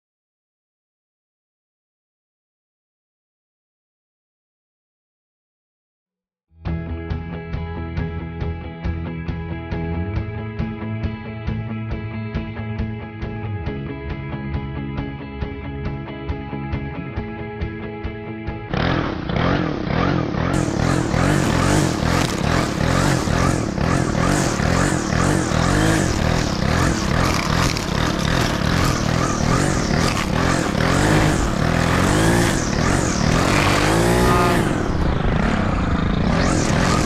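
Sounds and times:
string trimmer engine cutting grass: 18.7 - 37.0.

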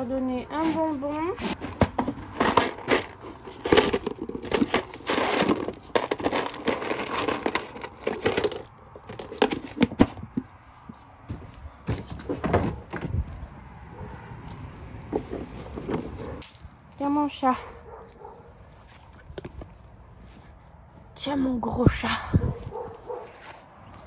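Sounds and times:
hand rummaging through hard treats: 1.6 - 10.2.

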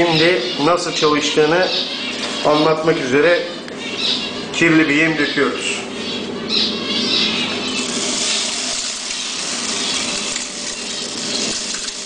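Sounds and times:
fan running: 0.0 - 12.0
seeds falling through a chute: 7.8 - 12.0.

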